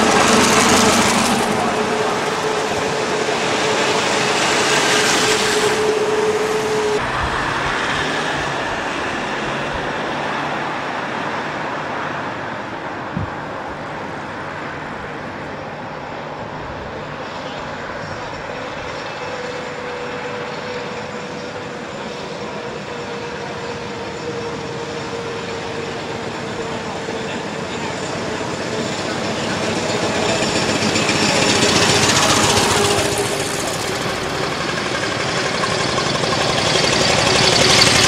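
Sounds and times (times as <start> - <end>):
cars driving by: 0.0 - 18.9
steady whine: 0.0 - 38.0.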